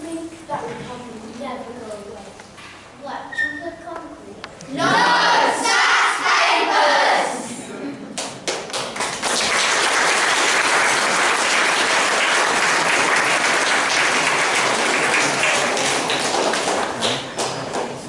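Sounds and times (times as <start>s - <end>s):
audience applauding: 8.4s - 18.0s.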